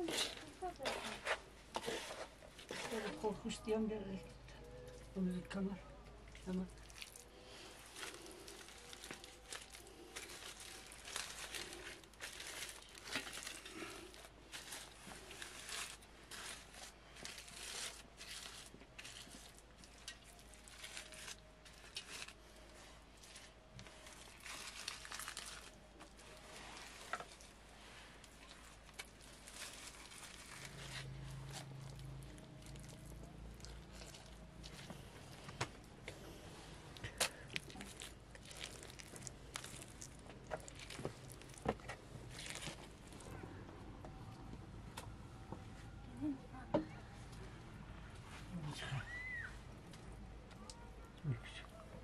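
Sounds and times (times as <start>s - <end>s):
aluminium foil crinkling: 6.4s - 35.9s, 36.9s - 43.4s.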